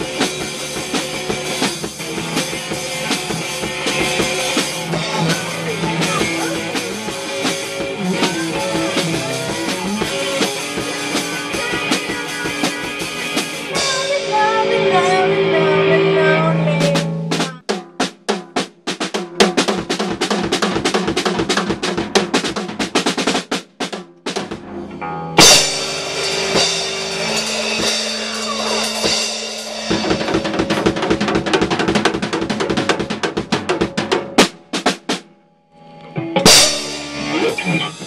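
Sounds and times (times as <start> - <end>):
drum rolls on snare and toms: 0.0 - 15.2, 16.8 - 24.8, 25.4 - 35.3
electric guitar: 0.0 - 17.4, 35.8 - 38.0
bass guitar: 0.0 - 17.6, 24.4 - 35.2, 35.8 - 38.0.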